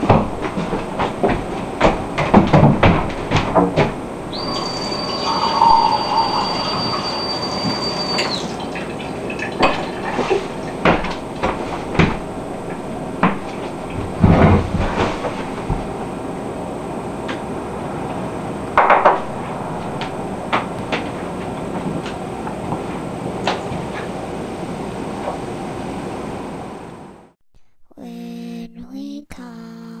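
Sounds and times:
chair knocking: 0.0 - 4.0, 10.1 - 16.0
footsteps: 0.0 - 4.3, 9.7 - 16.1, 19.1 - 22.1
tap whistling: 4.3 - 8.5
water filling glass: 4.4 - 10.5
glass set on table: 4.5 - 8.4
tap running: 8.2 - 16.0.

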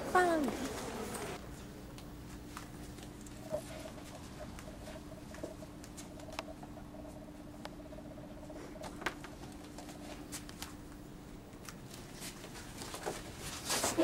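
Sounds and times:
steady low hum: 0.0 - 14.0
books being handled: 11.7 - 14.0.

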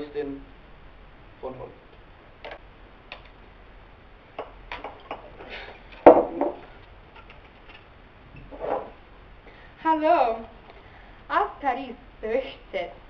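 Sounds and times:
bottle knock: 6.0 - 6.6.

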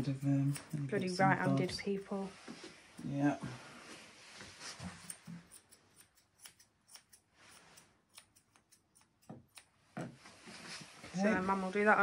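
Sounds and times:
scissors snipping fur: 5.0 - 9.8.

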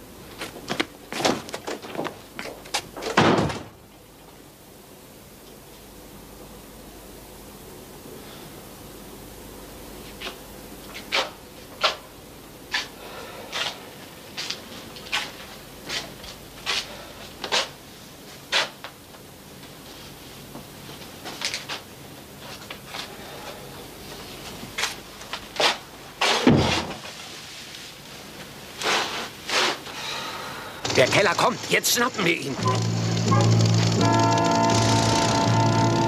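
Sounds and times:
crunchy footsteps: 13.5 - 17.7.

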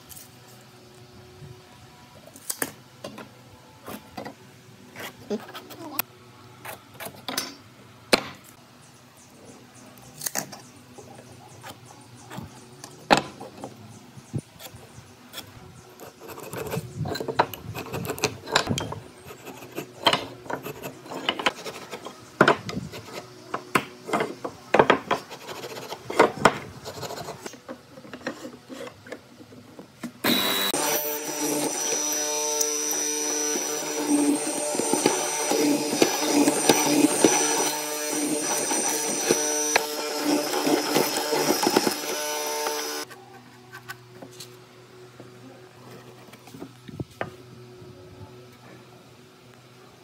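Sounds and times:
tools clicking and knocking on wood: 10.2 - 13.8, 17.1 - 19.0, 19.9 - 26.6
marking gauge scraping wood: 15.4 - 22.2, 25.0 - 29.2.

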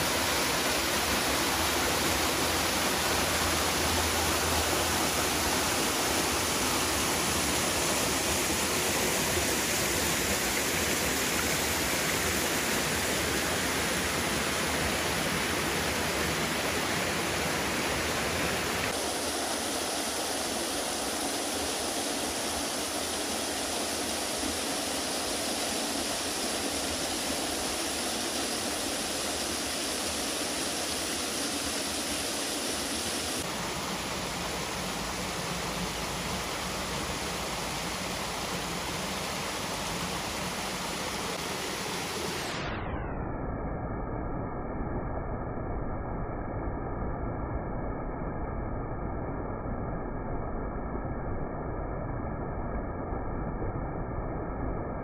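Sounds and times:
water rushing and splashing: 0.0 - 42.8.

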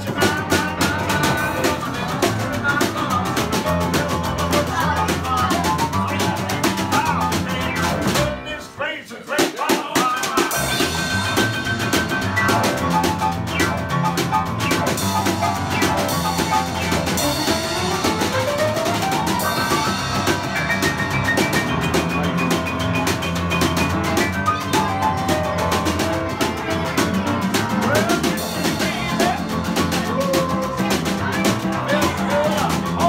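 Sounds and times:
snare drum and cymbal beat: 0.0 - 8.4, 9.3 - 33.0
plucked double bass: 0.0 - 8.6, 10.6 - 33.0
upright piano: 0.0 - 8.8, 10.5 - 33.0.

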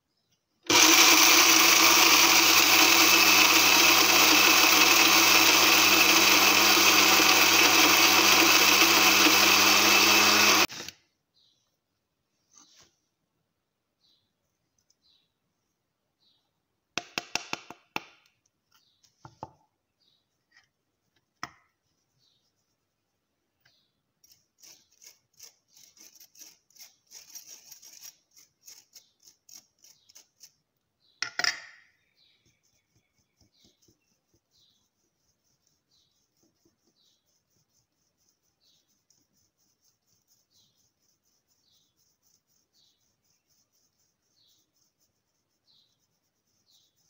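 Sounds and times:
spice sifting through mesh strainer: 24.2 - 30.6, 32.2 - 47.0.

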